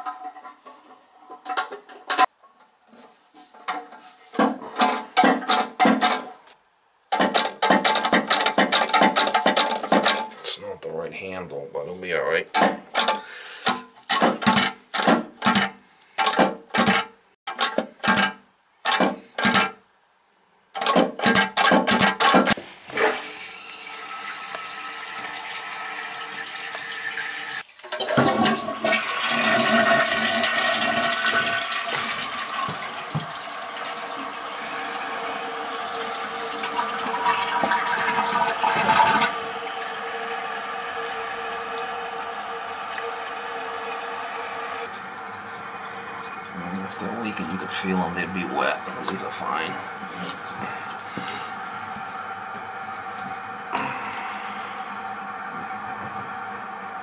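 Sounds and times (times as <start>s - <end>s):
toilet flushing: 21.0s - 57.0s
toilet tank filling with water: 23.0s - 57.0s.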